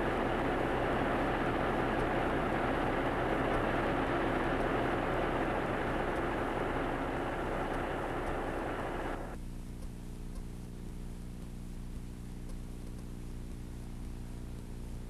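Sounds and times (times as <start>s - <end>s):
rushing rumbling noise: 0.0s - 9.4s
low electrical hum: 0.0s - 15.0s.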